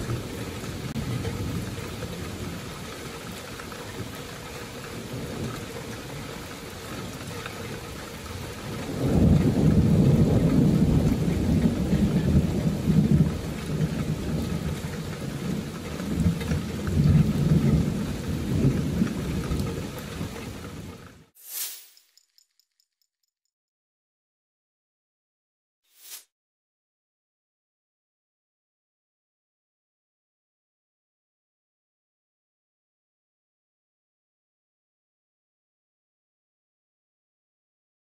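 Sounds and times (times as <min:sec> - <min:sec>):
thunder rumbling: 0:00.0 - 0:20.9
steady rain falling: 0:00.0 - 0:21.3.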